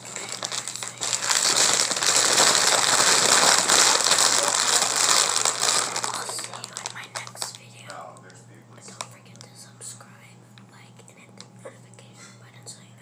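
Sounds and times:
chip bag crinkling: 0:00.0 - 0:09.5.

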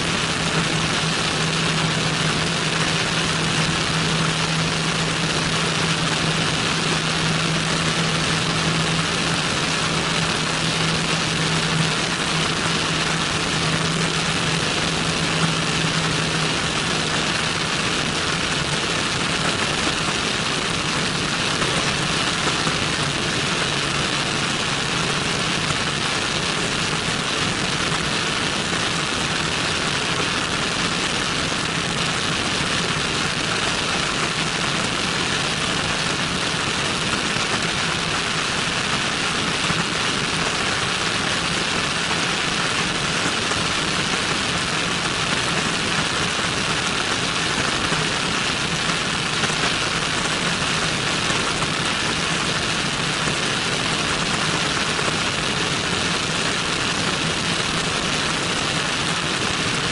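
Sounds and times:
airflow rushing over camera: 0:00.0 - 0:34.5
aircraft engine and propeller drone: 0:00.0 - 0:59.9.

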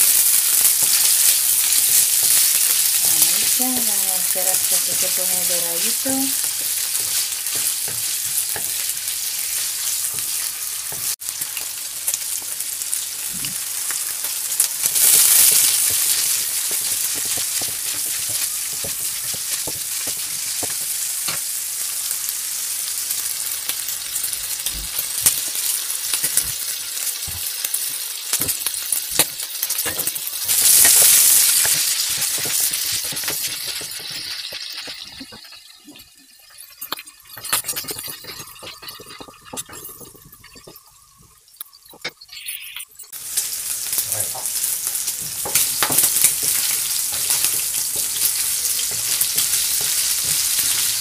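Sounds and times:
meat sizzling in a wok: 0:00.0 - 0:42.0, 0:43.1 - 0:51.0
wooden spoon scraping a pan: 0:36.9 - 0:41.3.

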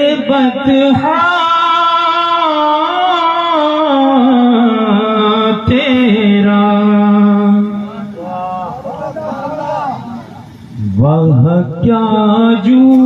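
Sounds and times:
man singing: 0:00.0 - 0:08.2, 0:10.8 - 0:13.0.

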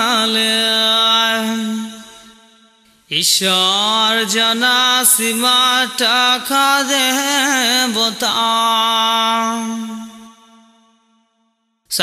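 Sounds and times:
man chanting: 0:00.0 - 0:02.4, 0:03.0 - 0:10.5.

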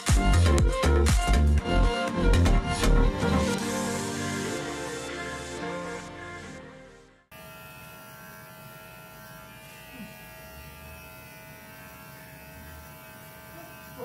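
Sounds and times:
electric hair clippers humming: 0:07.3 - 0:14.0.

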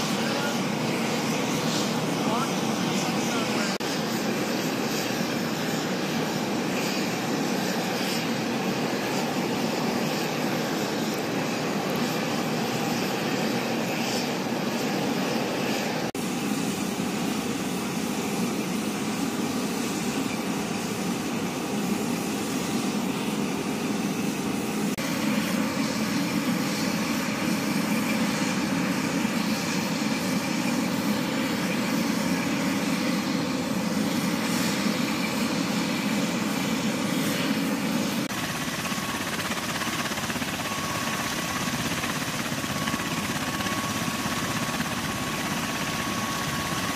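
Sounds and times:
aircraft engines running: 0:00.0 - 0:46.9.

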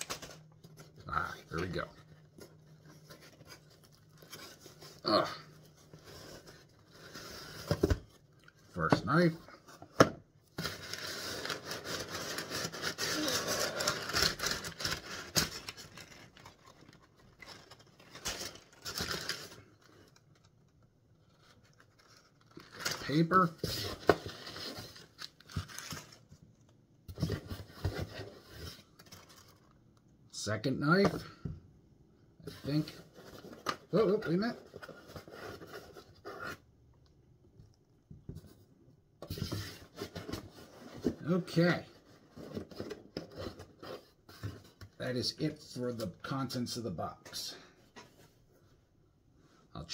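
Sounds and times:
packing paper crinkling and rustling: 0:00.0 - 0:05.0, 0:10.6 - 0:26.8.

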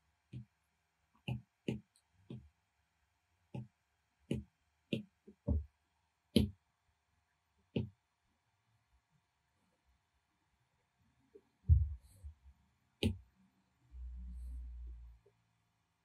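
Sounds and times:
stylus tapping glass screen: 0:04.3 - 0:05.7, 0:13.0 - 0:13.2.

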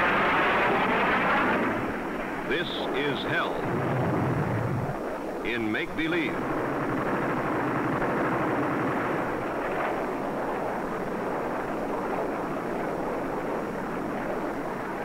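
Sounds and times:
rumbling explosions: 0:00.0 - 0:10.9.

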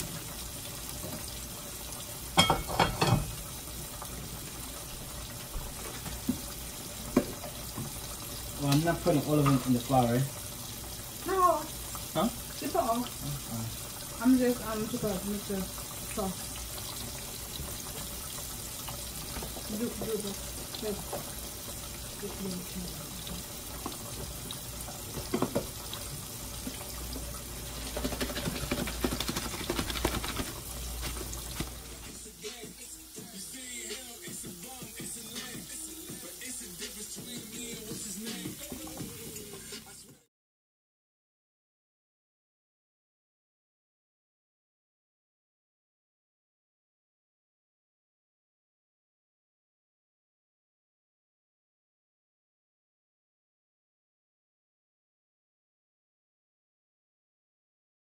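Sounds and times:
food bubbling in a pot: 0:00.0 - 0:32.0
food rattling in shaken container: 0:27.7 - 0:31.9.

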